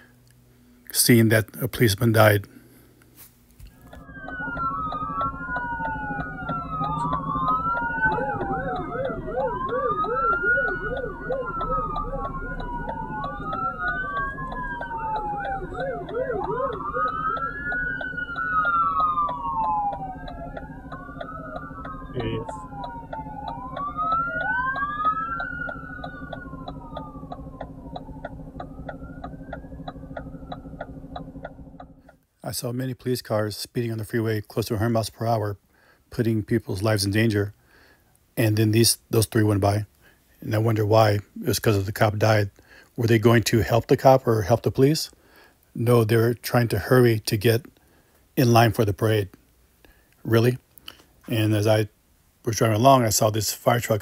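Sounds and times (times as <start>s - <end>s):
police sirens wailing: 3.7s - 32.0s
siren fast yelp: 3.7s - 32.1s
steady ticking: 3.8s - 32.3s.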